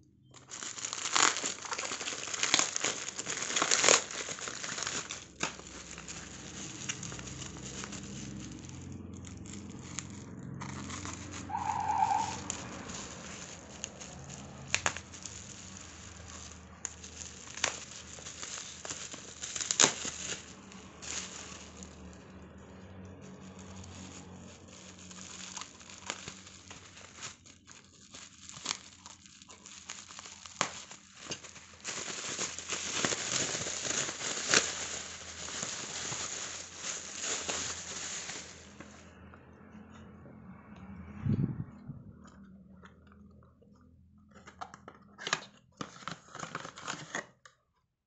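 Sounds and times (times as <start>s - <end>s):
bubble wrap crinkling: 0.0s - 39.1s, 44.4s - 47.5s.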